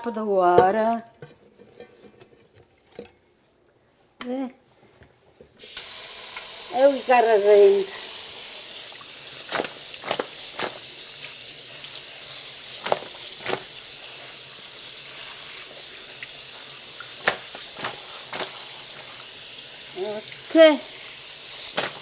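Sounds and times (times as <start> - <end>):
faucet running into a bowl: 5.6 - 22.0.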